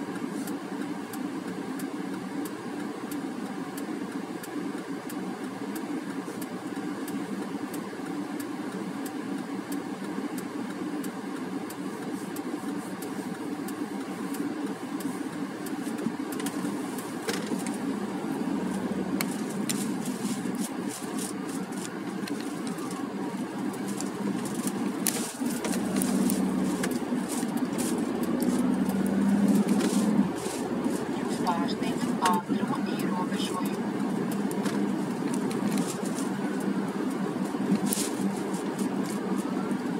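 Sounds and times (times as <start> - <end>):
car engine running: 0.0 - 39.9.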